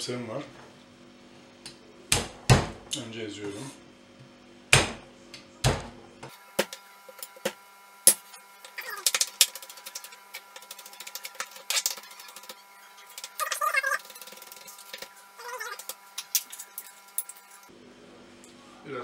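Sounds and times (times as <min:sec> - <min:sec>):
knife chopping on wooden board: 0:04.7 - 0:05.0.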